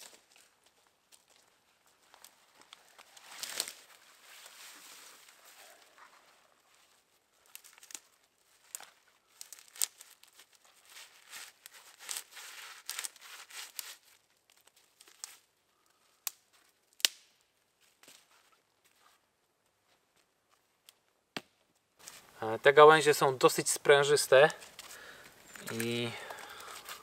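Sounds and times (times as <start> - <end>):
twigs rustling: 0.0 - 21.1, 21.7 - 27.0
branches snapping: 2.1 - 4.0, 7.4 - 15.4, 16.2 - 17.4, 24.5 - 27.0.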